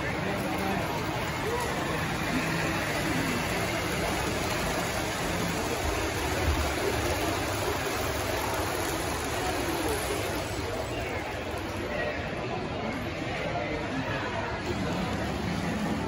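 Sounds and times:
faint distant voices: 0:00.0 - 0:16.0
steady rushing hall noise: 0:00.0 - 0:16.0.

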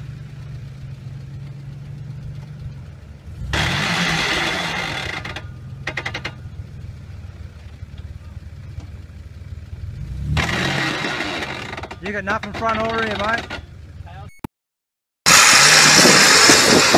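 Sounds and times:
suv engine revving: 0:00.0 - 0:07.5, 0:08.1 - 0:14.0, 0:15.3 - 0:16.9.

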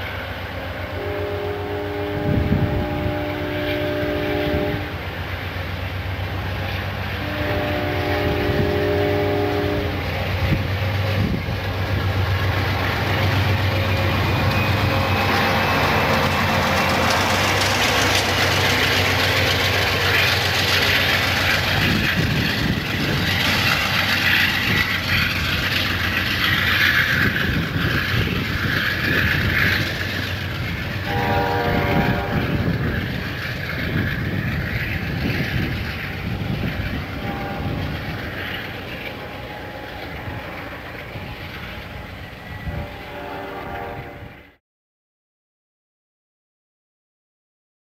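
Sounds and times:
diesel locomotive humming: 0:00.0 - 0:44.6
multi-tone train horn: 0:00.6 - 0:05.1, 0:07.1 - 0:10.1, 0:13.9 - 0:17.3, 0:31.0 - 0:33.0, 0:37.1 - 0:38.0, 0:39.2 - 0:40.6, 0:42.5 - 0:44.6
train wheels rumbling and clicking: 0:02.1 - 0:43.3.

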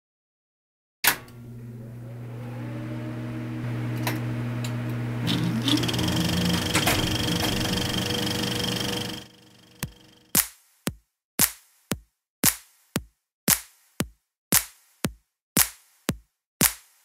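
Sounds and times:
low mechanical hum: 0:01.2 - 0:10.2
brief rising whine: 0:02.2 - 0:10.3.

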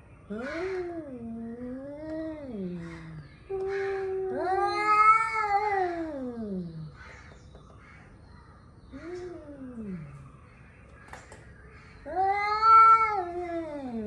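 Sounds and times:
cats yowling: 0:00.3 - 0:07.0, 0:12.0 - 0:14.0.

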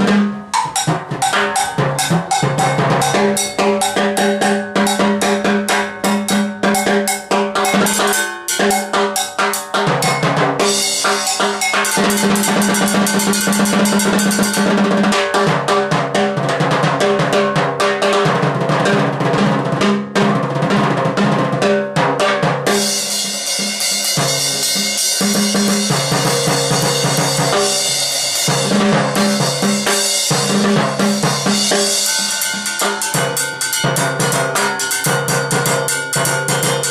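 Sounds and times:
bright cymbal ringing: 0:00.0 - 0:15.2, 0:22.7 - 0:36.9
timbales struck with sticks: 0:00.0 - 0:15.9, 0:22.7 - 0:36.9.

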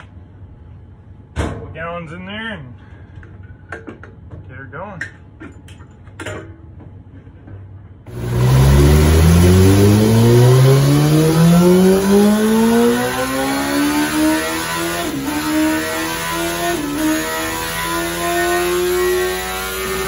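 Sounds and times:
motorcycle engine revving on dyno: 0:08.1 - 0:20.0.

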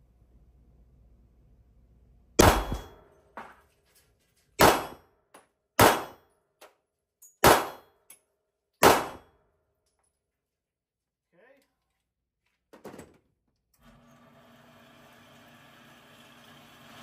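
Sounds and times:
pistol shots echoing indoors: 0:02.4 - 0:03.3, 0:04.6 - 0:05.1, 0:05.8 - 0:06.4, 0:07.4 - 0:08.0, 0:08.8 - 0:09.6.

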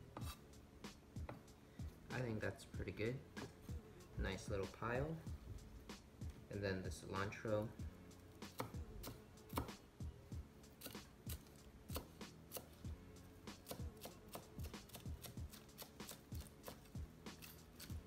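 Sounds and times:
knife chopping on wooden board: 0:00.1 - 0:00.4, 0:08.4 - 0:09.8, 0:10.8 - 0:12.8, 0:13.5 - 0:18.0.

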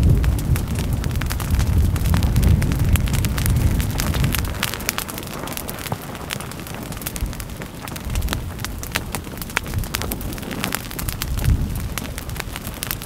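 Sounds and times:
low rumble: 0:00.0 - 0:04.7
vegetation crackling and popping: 0:00.0 - 0:13.0.

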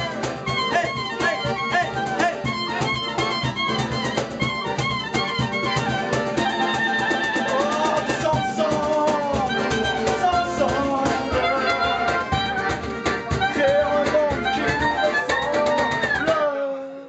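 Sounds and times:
man singing: 0:00.0 - 0:02.8, 0:06.4 - 0:12.5, 0:13.3 - 0:17.0
strummed acoustic guitar: 0:00.0 - 0:16.7
accordion: 0:00.0 - 0:17.0
clarinet: 0:00.0 - 0:17.0.

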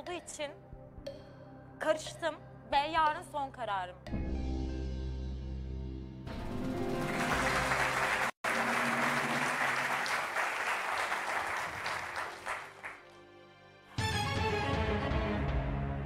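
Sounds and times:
audience applauding: 0:06.8 - 0:13.1.

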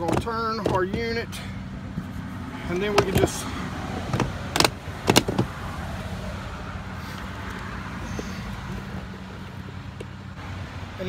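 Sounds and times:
sharp clicks and knocks: 0:00.0 - 0:01.1, 0:02.8 - 0:03.4, 0:04.0 - 0:05.5.

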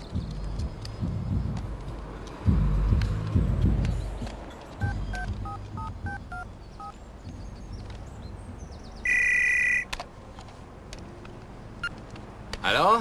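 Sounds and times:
phone keypad tones: 0:09.0 - 0:09.9
electronic phone ring: 0:09.1 - 0:09.9.

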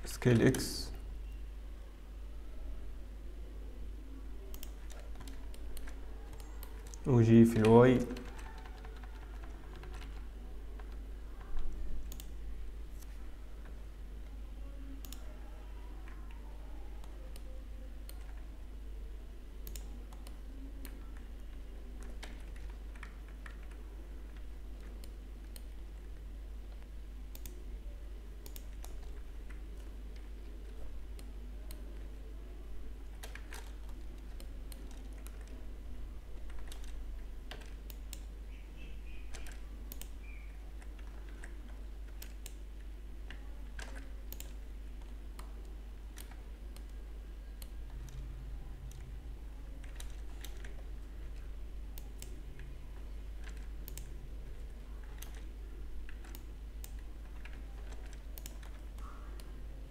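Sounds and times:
steady low hum: 0:00.0 - 0:59.9
mouse clicks: 0:04.5 - 0:10.2, 0:11.6 - 0:12.4, 0:15.0 - 0:15.3, 0:26.8 - 0:27.6, 0:36.4 - 0:42.6, 0:52.0 - 0:52.7, 0:53.4 - 0:59.6
computer keyboard keystrokes: 0:04.5 - 0:12.4, 0:22.0 - 0:25.8, 0:26.7 - 0:27.6, 0:28.4 - 0:31.8, 0:33.0 - 0:35.6, 0:36.4 - 0:38.3, 0:39.3 - 0:40.2, 0:43.3 - 0:47.0, 0:49.8 - 0:59.9.

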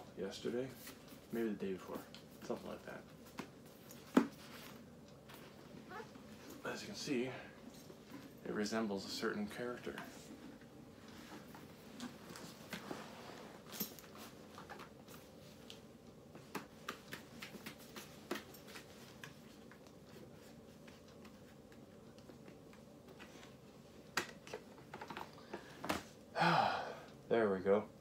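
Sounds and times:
helmet handling taps and clicks: 0:16.4 - 0:19.9.

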